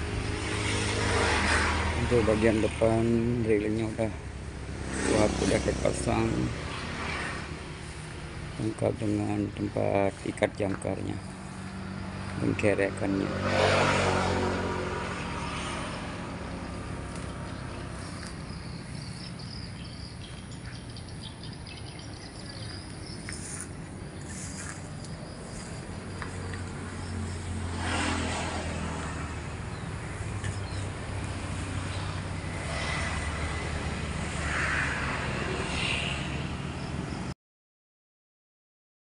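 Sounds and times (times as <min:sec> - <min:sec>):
low engine hum: 0:00.0 - 0:37.3
bird chirps: 0:17.2 - 0:26.3.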